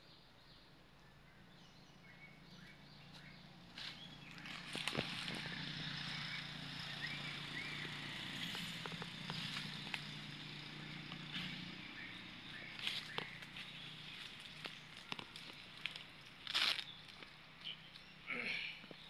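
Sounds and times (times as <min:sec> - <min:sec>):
dry leaves and twigs crackling: 0:03.1 - 0:06.2, 0:07.0 - 0:18.2.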